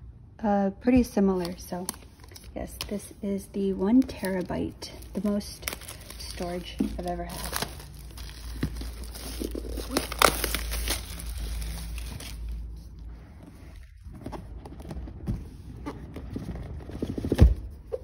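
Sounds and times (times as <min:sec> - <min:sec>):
plastic shrink-wrap crinkling: 0:01.4 - 0:13.0.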